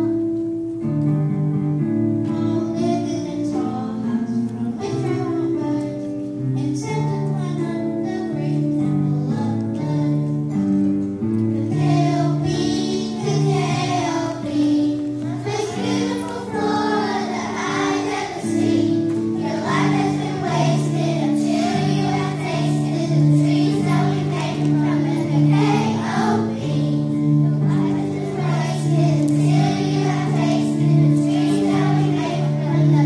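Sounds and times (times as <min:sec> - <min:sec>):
instrumental accompaniment: 0:00.0 - 0:33.0
children singing: 0:11.6 - 0:33.0.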